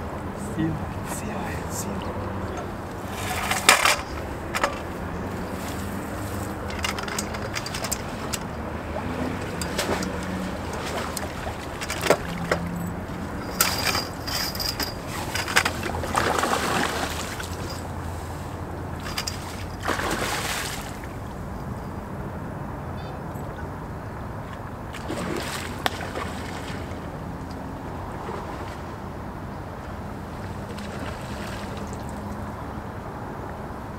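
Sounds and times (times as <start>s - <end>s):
water sloshing: 0.0s - 21.4s, 24.4s - 29.0s, 30.3s - 32.5s.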